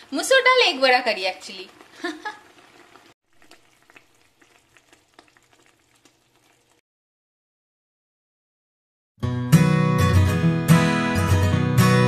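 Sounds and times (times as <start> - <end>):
soft sizzle: 0.0 - 6.8
gravy bubbling and popping: 1.6 - 6.8.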